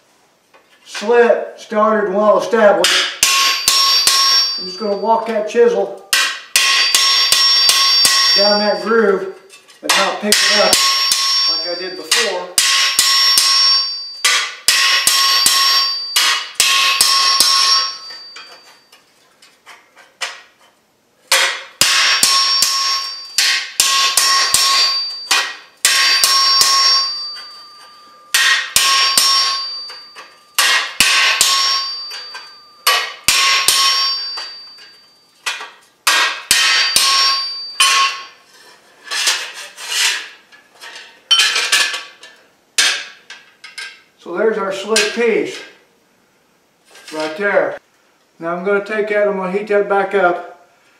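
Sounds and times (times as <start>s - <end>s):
hammer striking chisel on hot steel: 2.8s - 5.3s, 6.1s - 8.9s, 9.6s - 19.1s, 21.3s - 44.0s, 45.0s - 45.2s.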